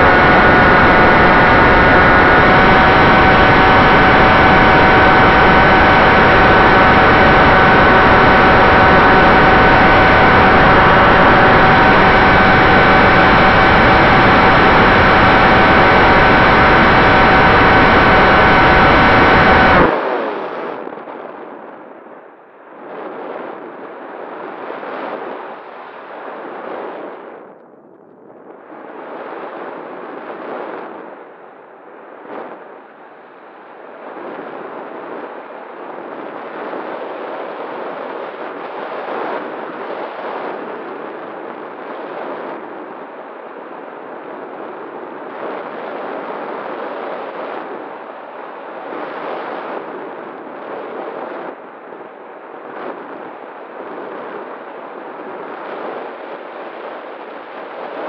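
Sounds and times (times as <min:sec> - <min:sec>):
propeller motor whine: 0:00.0 - 0:20.5
wind rushing over microphone: 0:00.0 - 0:21.7.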